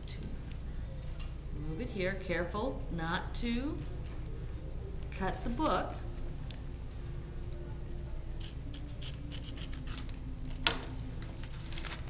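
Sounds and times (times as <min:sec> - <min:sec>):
knife blade scraping tape: 0:08.4 - 0:10.0
paper and plastic rustling: 0:11.0 - 0:12.0.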